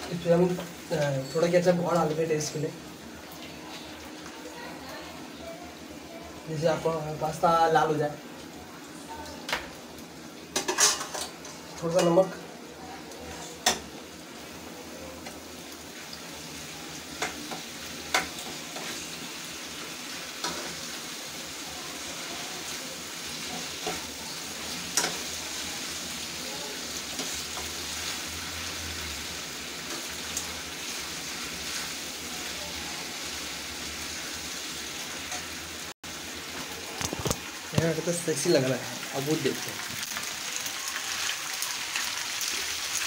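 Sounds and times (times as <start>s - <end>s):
food sizzling in a frying pan: 0.0s - 43.0s.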